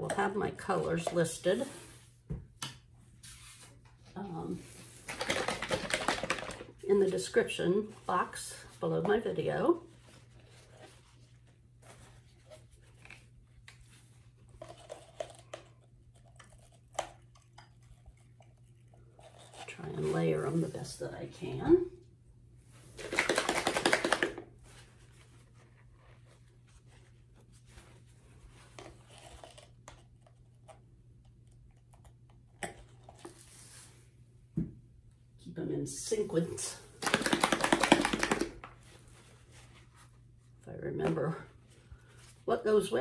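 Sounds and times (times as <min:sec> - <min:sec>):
gloved hands rustling and tapping: 0:05.0 - 0:06.8, 0:23.0 - 0:24.8, 0:37.0 - 0:39.3.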